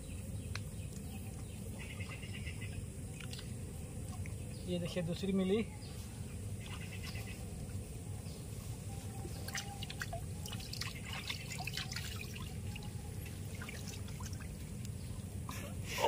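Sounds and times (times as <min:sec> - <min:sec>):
low steady rumble: 0:00.0 - 0:16.0
water dripping and trickling: 0:03.1 - 0:04.4, 0:09.3 - 0:15.4.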